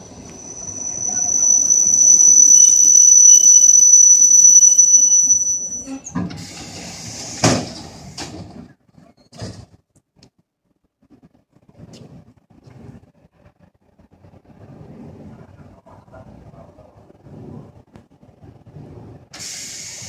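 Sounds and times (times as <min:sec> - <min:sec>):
train brakes squealing: 0:00.0 - 0:07.5.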